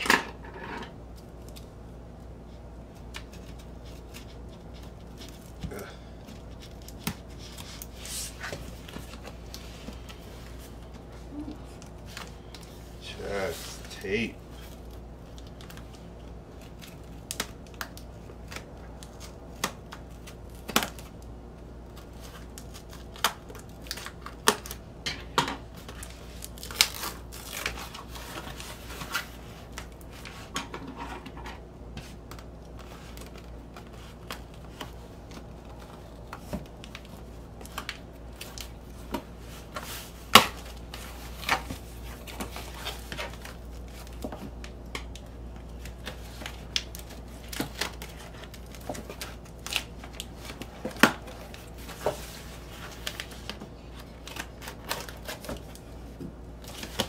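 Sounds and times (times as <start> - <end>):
crinkles: 1.0 - 24.9, 25.7 - 30.5
tape ripping off cardboard: 25.9 - 29.8.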